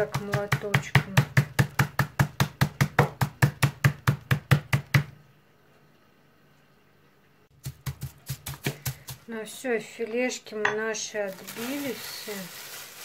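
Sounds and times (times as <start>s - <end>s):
meat mallet pounding chicken: 0.0s - 5.1s, 7.6s - 9.2s.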